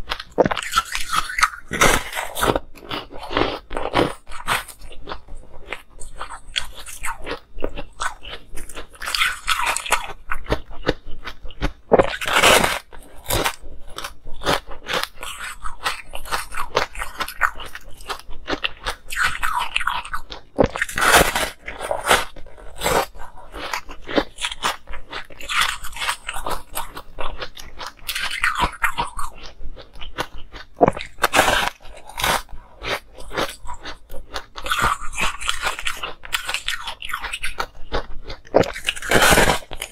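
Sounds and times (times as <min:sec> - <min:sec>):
ice crunching while chewed: 0:00.0 - 0:39.9
ice cracking as bitten: 0:38.4 - 0:39.9.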